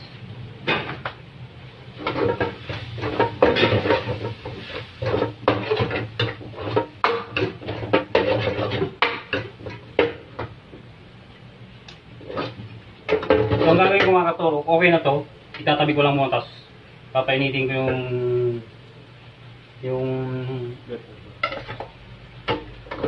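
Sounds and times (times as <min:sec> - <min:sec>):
metal spatula scraping a wok: 0:02.0 - 0:09.1.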